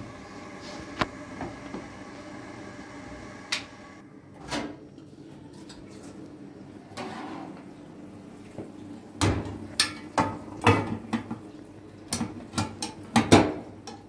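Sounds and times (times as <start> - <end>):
dishes and pans clattering: 9.2 - 11.4, 12.1 - 14.0.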